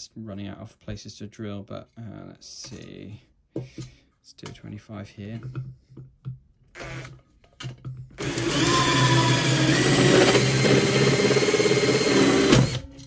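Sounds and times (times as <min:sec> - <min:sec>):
cordless drill cutting sheet steel: 0:06.8 - 0:07.1, 0:08.2 - 0:13.0.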